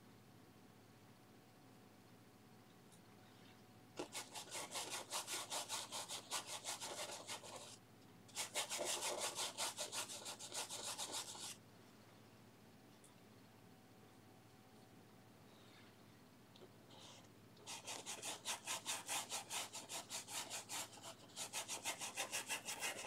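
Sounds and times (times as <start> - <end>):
paintbrush scrubbing on canvas: 4.0 - 11.6, 17.7 - 23.0.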